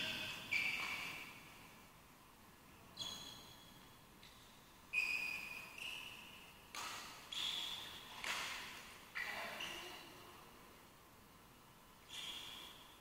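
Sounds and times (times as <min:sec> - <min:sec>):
rackets hitting shuttlecock: 0:06.7 - 0:08.8.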